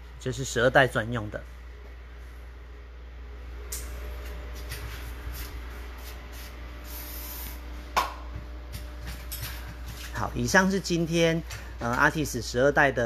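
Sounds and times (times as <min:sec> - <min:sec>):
low hum: 0:01.4 - 0:09.0.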